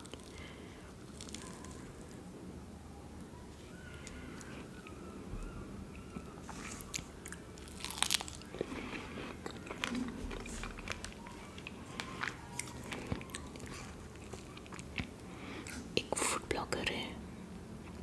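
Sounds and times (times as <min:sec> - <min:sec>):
biting and chewing fruit: 0:03.8 - 0:15.9.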